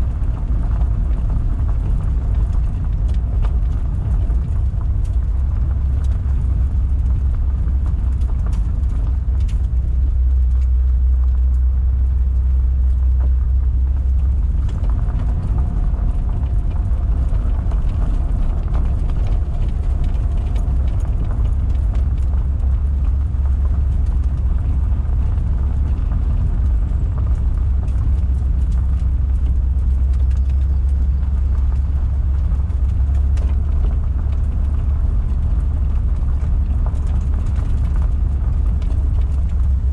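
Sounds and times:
car engine low drone: 0.0 - 39.9
faint ticks of stones: 0.1 - 39.9.

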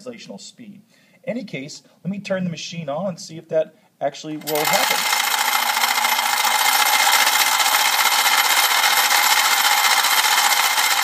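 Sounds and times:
beads rattling in vibrating tray: 4.4 - 11.0.

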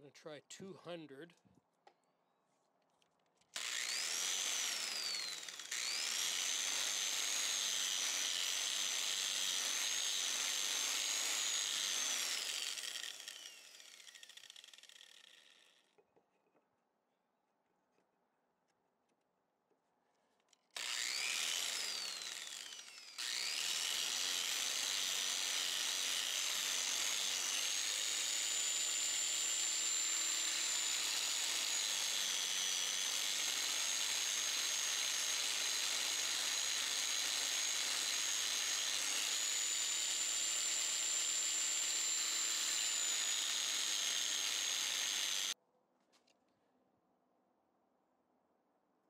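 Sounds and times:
angle grinder grinding wood: 3.6 - 15.6, 20.8 - 45.6.

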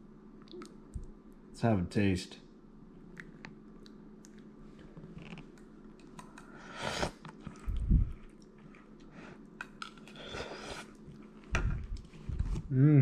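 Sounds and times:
person chewing: 5.2 - 12.1.

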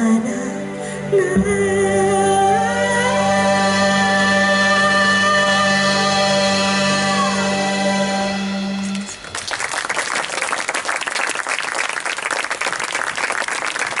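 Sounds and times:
audience applause: 9.2 - 14.0.

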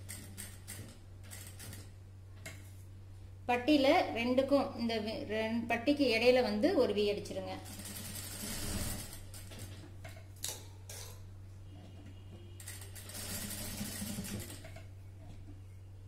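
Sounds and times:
sewing machine stitching: 7.7 - 9.8, 12.6 - 14.8.

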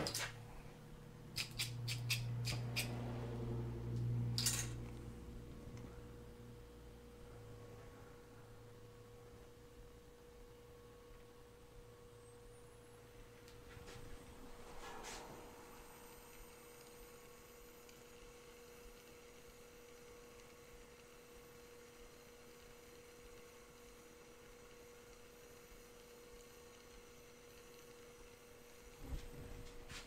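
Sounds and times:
low machine hum: 0.0 - 30.0
short scrape: 13.7 - 15.8.

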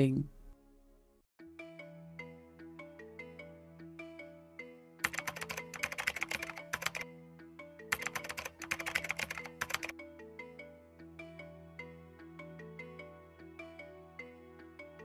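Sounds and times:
soft background music: 0.0 - 15.0
keyboard typing: 5.0 - 7.0, 7.9 - 9.9.

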